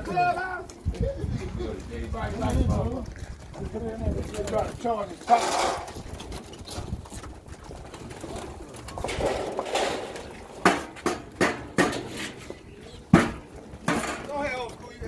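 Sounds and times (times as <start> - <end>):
sharp knocks: 10.6 - 12.2.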